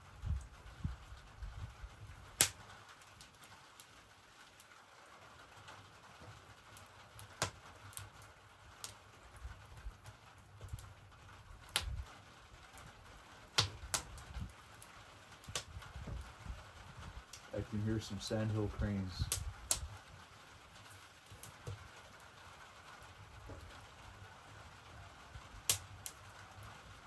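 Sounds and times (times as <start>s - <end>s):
wood fire crackling and popping: 0.0s - 27.0s.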